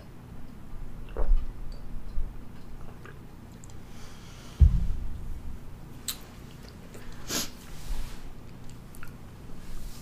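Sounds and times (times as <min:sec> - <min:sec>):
low thump: 0:04.6 - 0:05.6.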